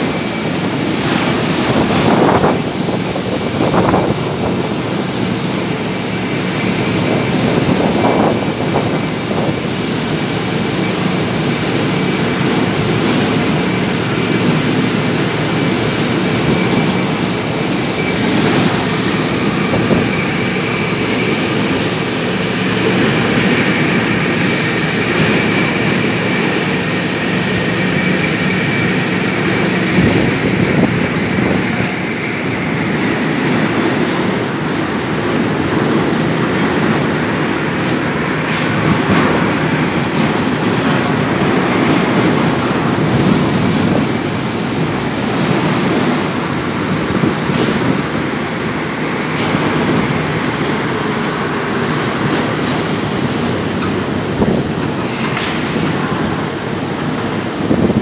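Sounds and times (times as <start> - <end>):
construction machinery engine hum: 0.0 - 58.0
thin high whine: 10.7 - 47.1.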